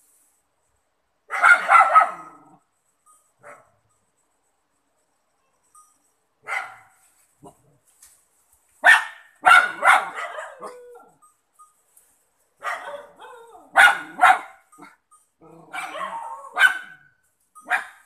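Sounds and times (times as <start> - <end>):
dog barking: 1.3 - 2.5, 3.4 - 3.8, 6.4 - 7.6, 8.8 - 10.9, 12.6 - 15.0, 15.6 - 17.1, 17.7 - 18.0.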